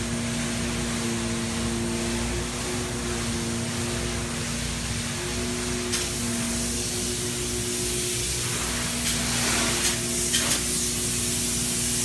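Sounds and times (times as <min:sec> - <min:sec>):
low machine hum: 0:00.0 - 0:12.0
spray foam gun hissing: 0:00.1 - 0:12.0.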